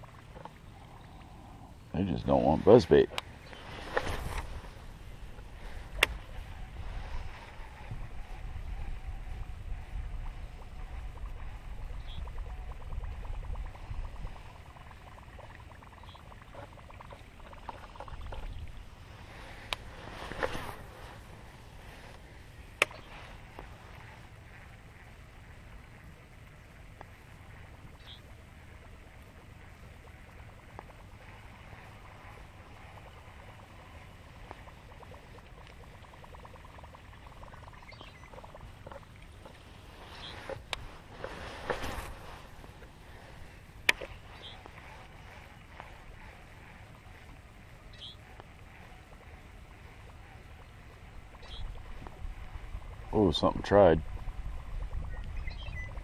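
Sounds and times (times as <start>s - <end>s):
wind rumble on microphone: 0.0s - 36.3s, 37.0s - 56.0s
short rustle: 3.5s - 7.6s, 19.1s - 22.3s, 39.5s - 45.2s.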